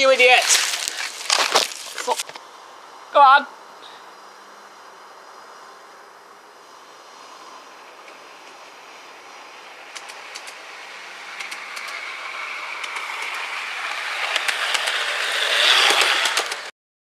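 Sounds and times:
model train wheels clicking: 0:08.0 - 0:16.7.

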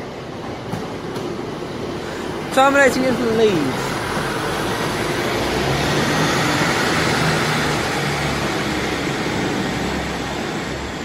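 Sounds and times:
train wheels on rail: 0:00.0 - 0:11.0
diesel engine running: 0:03.5 - 0:11.0.

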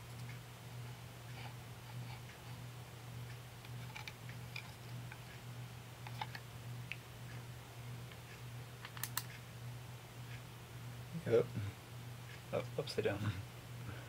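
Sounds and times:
steady low hum: 0:00.0 - 0:14.0
sharp clicks: 0:08.8 - 0:09.4
small metallic clicks: 0:08.8 - 0:09.4.

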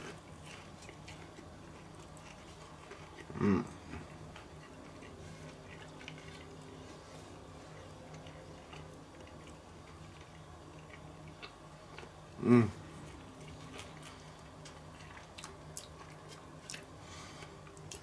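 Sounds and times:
person chewing: 0:00.0 - 0:18.0
short vocal sound: 0:03.3 - 0:03.8, 0:12.4 - 0:12.8.

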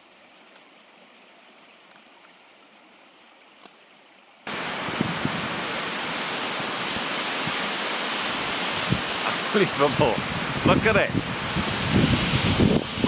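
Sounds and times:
faint hiss: 0:00.0 - 0:13.0
waterfall rushing over rock: 0:04.5 - 0:13.0.

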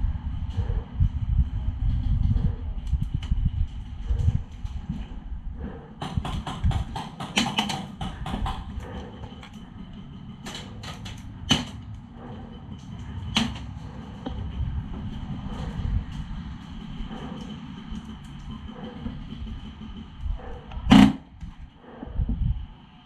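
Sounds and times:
wind rumble: 0:00.0 - 0:23.0
airsoft gun shots: 0:20.9 - 0:21.2.

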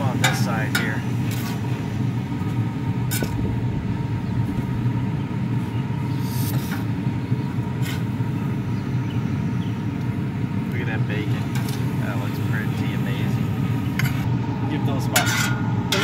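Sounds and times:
steady low rumble: 0:00.8 - 0:15.1
metal spatula scraping griddle: 0:15.2 - 0:16.0.

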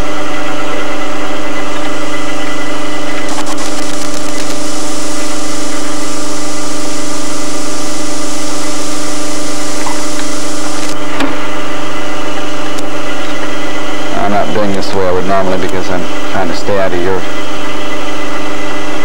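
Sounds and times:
drill press motor running: 0:01.6 - 0:14.1.

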